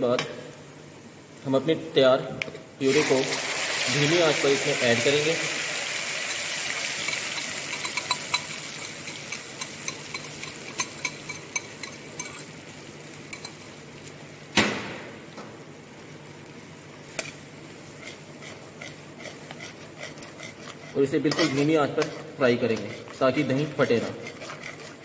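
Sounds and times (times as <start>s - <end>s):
faint sizzle: 0.0s - 24.3s
spatula scraping iron pan: 18.0s - 25.0s.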